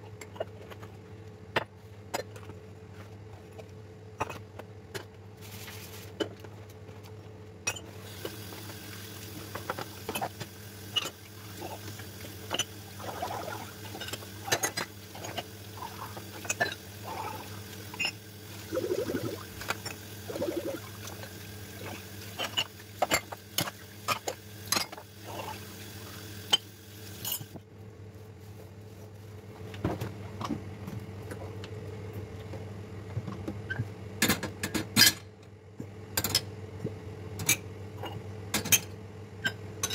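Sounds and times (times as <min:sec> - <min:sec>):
tap water running: 0:08.0 - 0:27.6.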